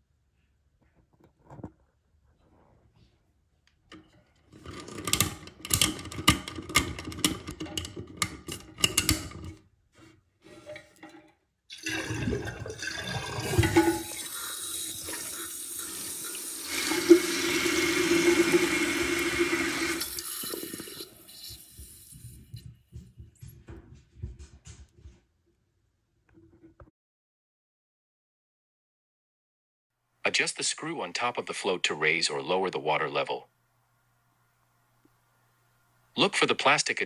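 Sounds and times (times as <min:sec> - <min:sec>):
clicking and rattling: 0:03.9 - 0:09.6
toilet flushing: 0:10.5 - 0:22.6
fill valve hum: 0:10.5 - 0:22.7
water rushing into tank: 0:11.7 - 0:22.0.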